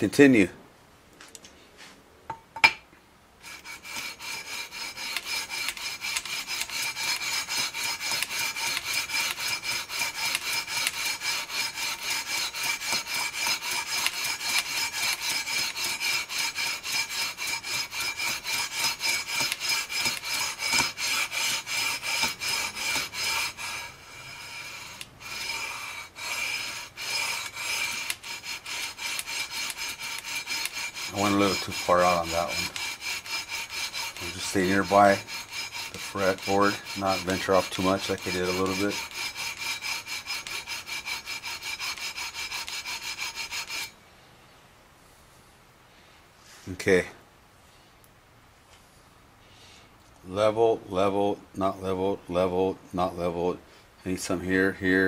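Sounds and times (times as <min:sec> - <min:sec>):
sandpaper scraping on metal frets: 0:03.4 - 0:43.9.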